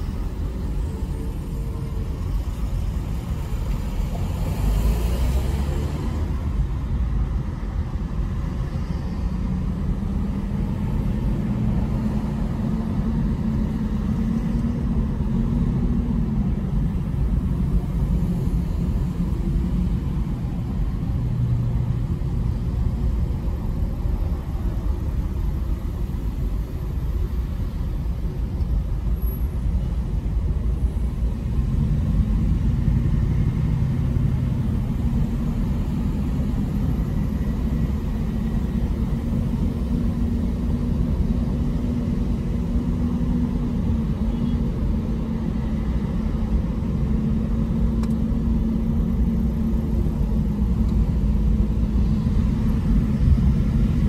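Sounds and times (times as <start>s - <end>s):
car road and engine rumble: 0.0s - 54.0s
engine humming tone: 0.0s - 54.0s.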